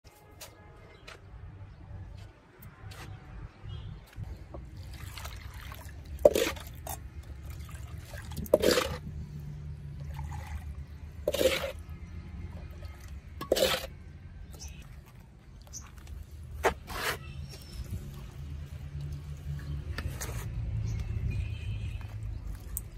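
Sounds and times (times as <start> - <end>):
cement slurry splashing: 4.6 - 19.4.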